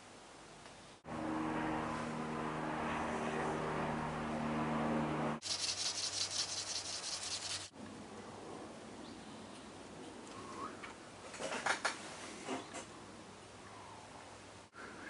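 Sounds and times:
hand tool rubbing on statue: 0:05.4 - 0:07.7.

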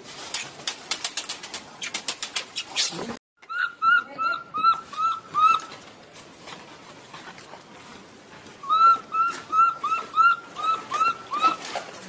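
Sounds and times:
baby monkey high coo calls: 0:02.8 - 0:05.7, 0:08.6 - 0:11.6.

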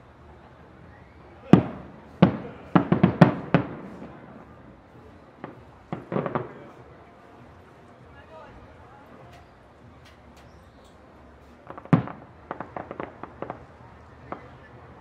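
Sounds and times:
firework shells bursting: 0:01.5 - 0:04.6, 0:05.4 - 0:06.8, 0:09.3 - 0:13.7.

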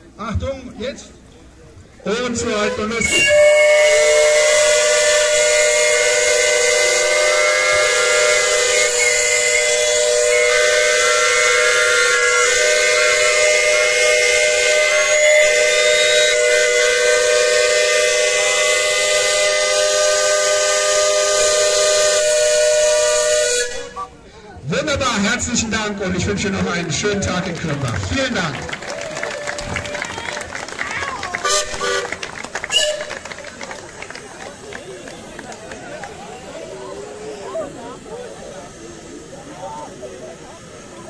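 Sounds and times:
steam whistles blowing: 0:02.4 - 0:24.3, 0:31.4 - 0:41.0.

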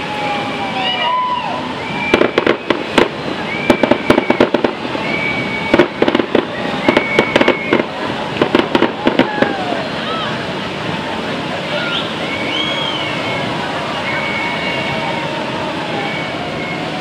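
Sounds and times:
firecrackers crackling: 0:00.0 - 0:17.0
high whistling tone: 0:00.8 - 0:08.0, 0:11.7 - 0:15.3, 0:15.9 - 0:17.0.

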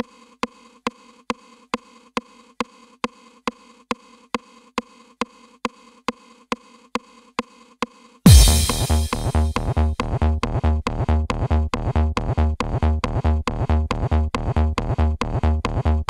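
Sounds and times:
trance music with kick drum: 0:08.3 - 0:09.6.

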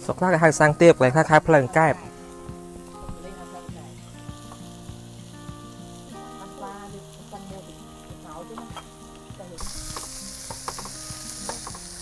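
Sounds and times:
meat sizzling on grill: 0:00.0 - 0:12.0
chopsticks and utensils clicking: 0:10.7 - 0:11.9.

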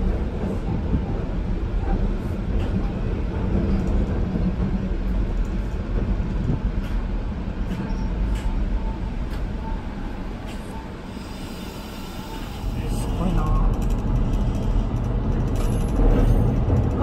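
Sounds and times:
train rumbling on rails: 0:00.0 - 0:17.0
faint rail clicks: 0:12.3 - 0:17.0.

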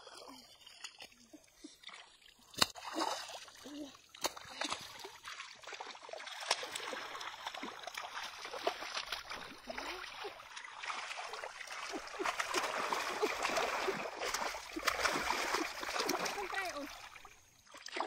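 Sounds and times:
hands sloshing through muddy stream: 0:00.0 - 0:18.0
small water splashes: 0:00.0 - 0:18.0.

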